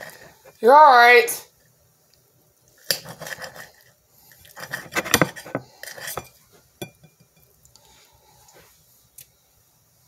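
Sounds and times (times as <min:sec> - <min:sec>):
utensils clinking against a dish: 0:04.5 - 0:07.5.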